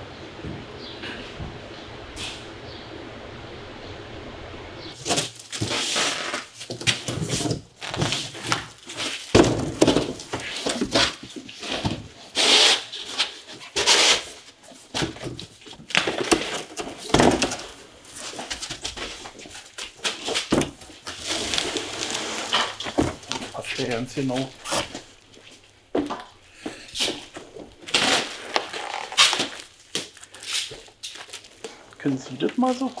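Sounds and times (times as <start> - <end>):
cardboard and plastic wrap rustling: 4.9 - 33.0
knocks of boxes: 6.6 - 12.2, 14.9 - 17.7.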